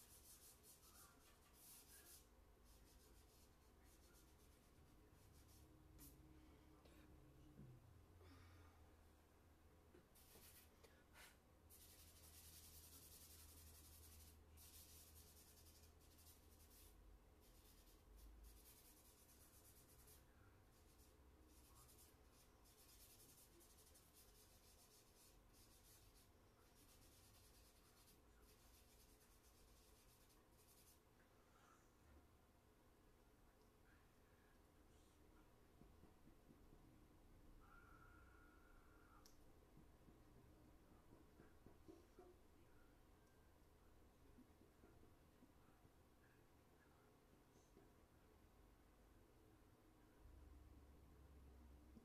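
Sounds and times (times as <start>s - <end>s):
charcoal scratching on paper: 0.0s - 6.2s, 10.2s - 31.0s.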